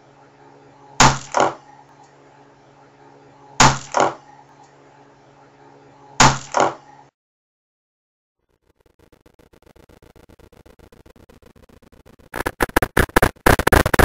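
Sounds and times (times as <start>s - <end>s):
low electrical hum: 0.0s - 7.1s.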